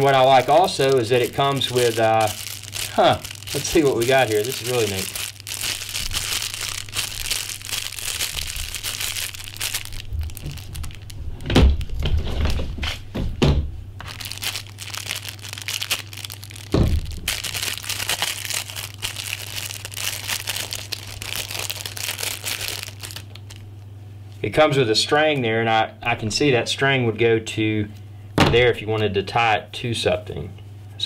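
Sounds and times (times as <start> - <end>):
cellophane wrap crinkling: 0.0 - 12.6, 14.0 - 23.9.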